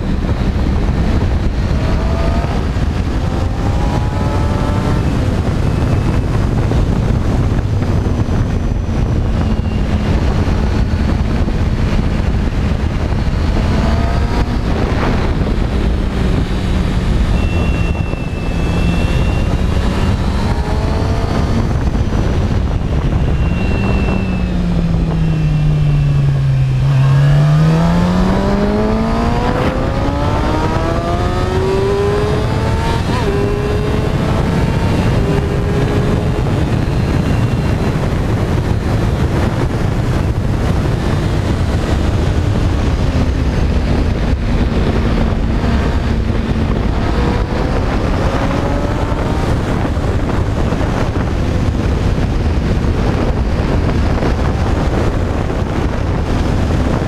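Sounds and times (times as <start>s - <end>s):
motorcycle engine at speed: 0.0s - 57.0s
wind rushing over microphone: 0.0s - 57.0s.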